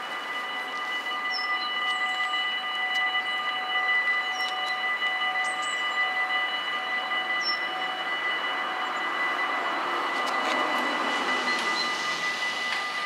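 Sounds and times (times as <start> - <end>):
level crossing warning bells: 0.0 - 13.0
broad rushing noise: 8.1 - 13.0.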